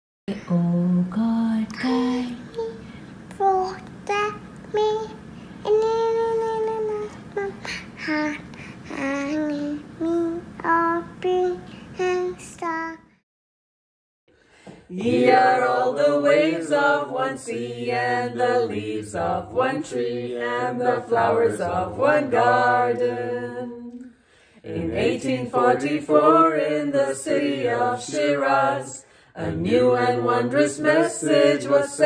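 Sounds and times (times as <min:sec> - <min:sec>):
girl singing: 0:03.4 - 0:13.0
group singing unaccompanied: 0:14.9 - 0:32.0.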